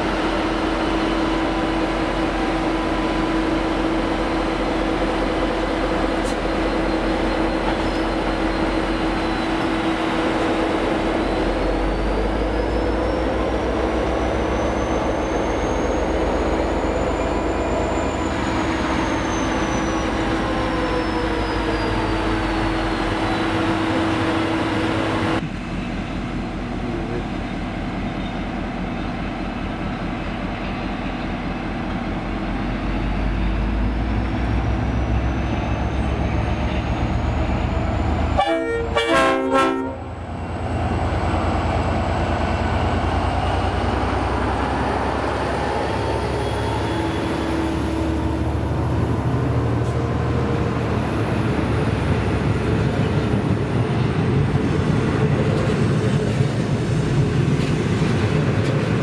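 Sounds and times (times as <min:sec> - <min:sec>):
train rumbling by: 0:00.0 - 0:59.0
train horn blast: 0:38.4 - 0:40.2.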